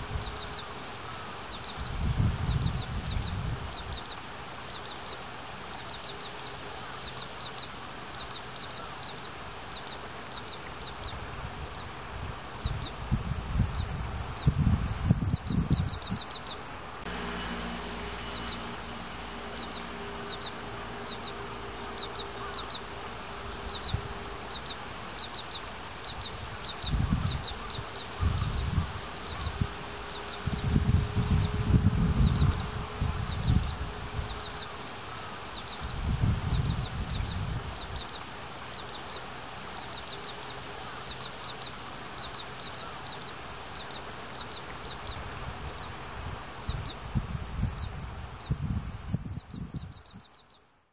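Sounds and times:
steady high buzz: 0.0 - 50.3
bird fledgling chirping: 0.1 - 0.7, 1.5 - 12.0, 12.6 - 17.0, 18.2 - 23.0, 23.6 - 34.8, 35.5 - 46.0
wind buffeting microphone: 1.6 - 4.1, 11.0 - 17.1, 26.0 - 34.6, 35.7 - 38.2, 45.1 - 50.3.

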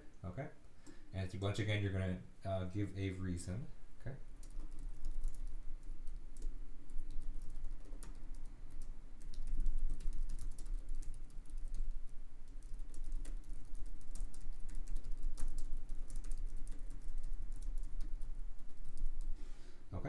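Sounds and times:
steady low hum: 0.0 - 20.0
keyboard typing clicks: 4.4 - 11.9, 12.5 - 19.3.

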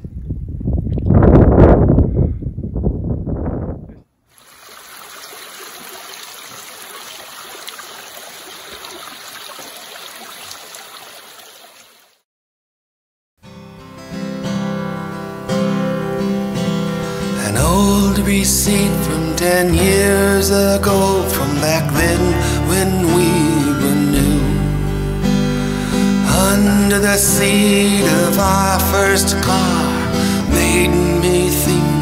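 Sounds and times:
water trickling over rocks: 4.3 - 12.2
acoustic guitar: 13.4 - 32.0.

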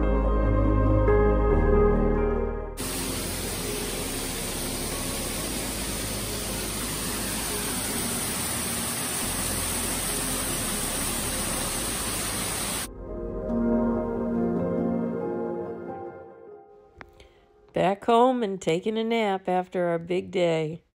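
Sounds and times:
waterfall rushing over stone: 2.8 - 12.9.

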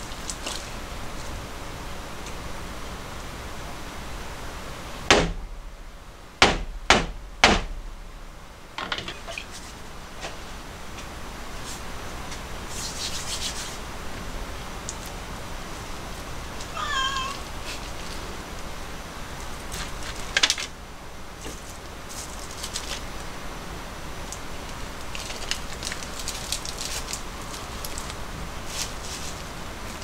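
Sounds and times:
cat meowing: 16.7 - 17.5.

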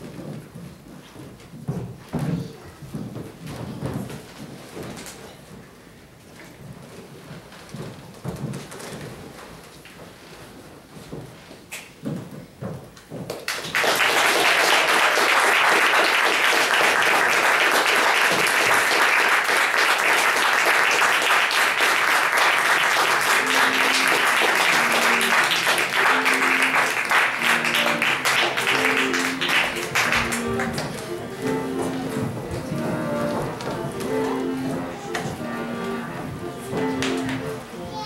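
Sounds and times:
audience applauding: 13.5 - 37.7
music with held notes: 23.0 - 38.0.

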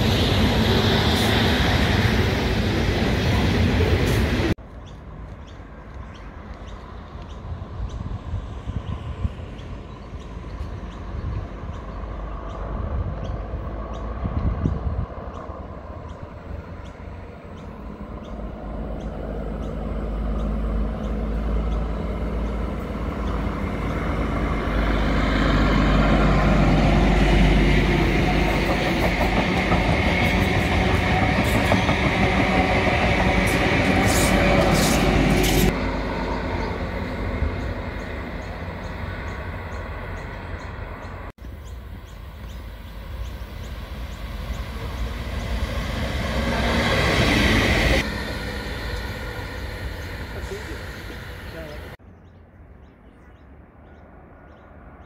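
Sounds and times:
diesel locomotive engine: 0.0 - 52.0
diesel railcar passing: 0.0 - 55.0
rail clicks: 8.9 - 52.0.

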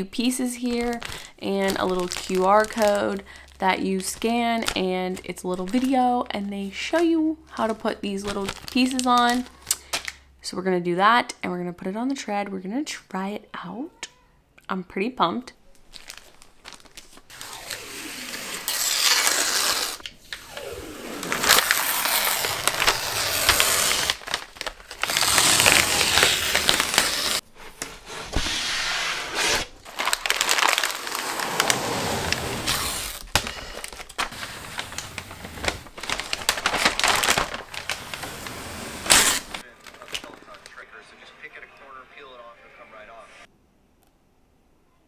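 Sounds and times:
film peeling off plastic sheet: 15.8 - 27.4, 29.5 - 40.7.

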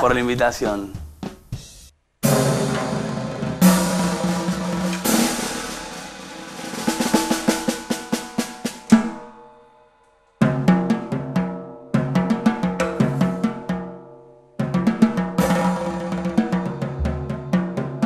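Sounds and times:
snare and tom strokes: 0.9 - 9.4, 12.0 - 13.9, 14.6 - 18.0
cymbal crashes: 2.2 - 9.9, 15.4 - 17.4.

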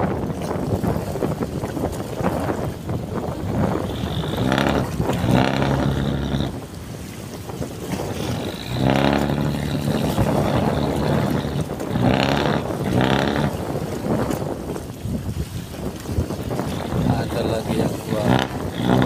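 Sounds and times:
wind on microphone: 0.0 - 19.0
boat diesel engine droning: 3.4 - 14.4, 16.4 - 19.0.

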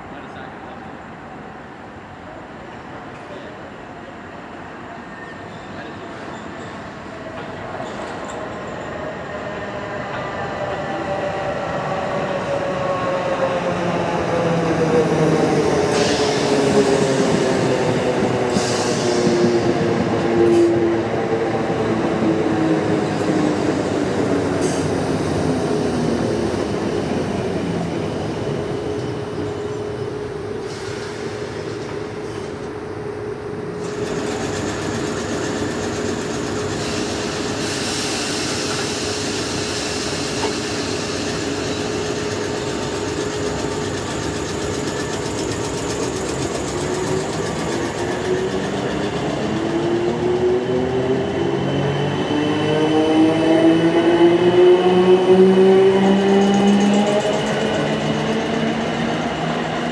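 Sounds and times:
electric train humming: 32.7 - 59.9.

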